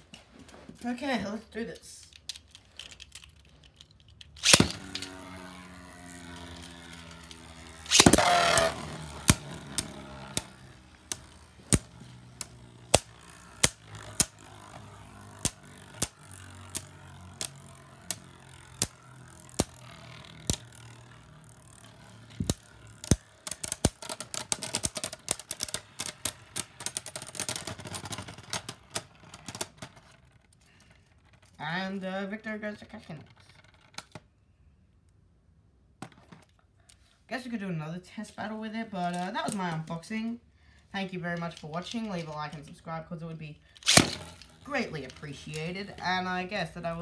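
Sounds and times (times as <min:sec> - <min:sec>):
spinning top rattling clatter: 0:01.8 - 0:32.0, 0:41.2 - 0:47.0
spinning tops clacking: 0:02.1 - 0:29.9, 0:43.8 - 0:47.0
ripcord launcher zip: 0:04.2 - 0:30.1, 0:41.2 - 0:47.0.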